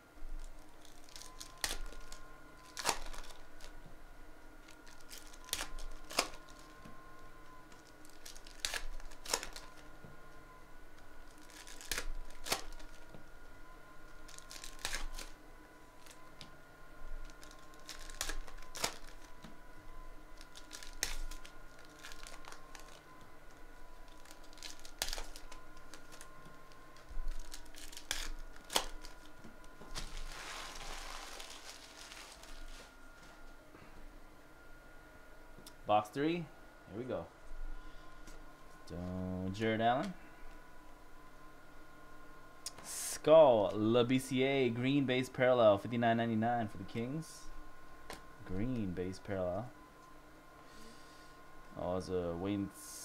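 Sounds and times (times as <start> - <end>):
faint steady hum: 0.0 - 53.0
foil wrappers tearing and crinkling: 0.3 - 3.8, 4.6 - 6.8, 7.6 - 9.9, 11.2 - 13.2, 14.0 - 15.4, 16.0 - 16.4, 17.2 - 19.5, 20.3 - 33.3.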